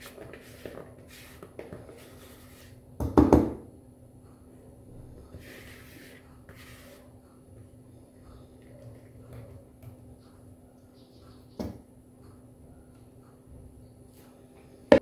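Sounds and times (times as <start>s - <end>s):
spatula scraping batter in bowl: 0.0s - 2.8s, 5.2s - 7.2s.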